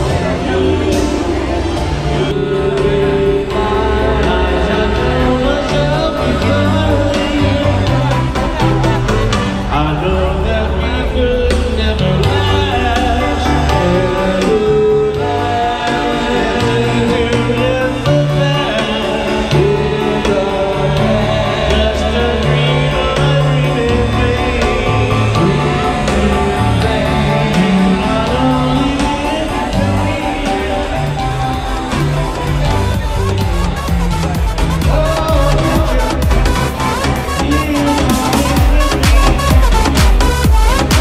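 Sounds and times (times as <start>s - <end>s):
live band with singer: 0.0s - 41.0s.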